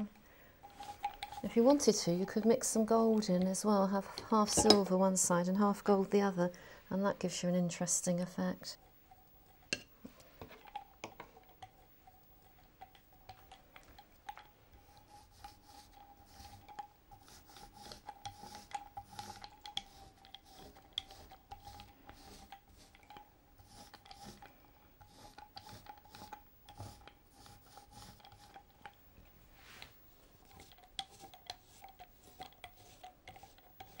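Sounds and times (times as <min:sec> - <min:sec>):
brush in ceramic palette: 0:00.0 - 0:06.3, 0:07.2 - 0:34.0
foam roller on paper: 0:14.8 - 0:28.6, 0:29.6 - 0:34.0.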